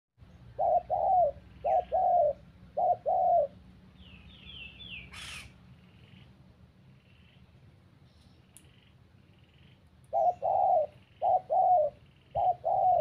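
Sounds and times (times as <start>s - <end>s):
small bird chirping: 0.2s - 13.0s
dove cooing: 0.4s - 3.6s, 8.8s - 13.0s.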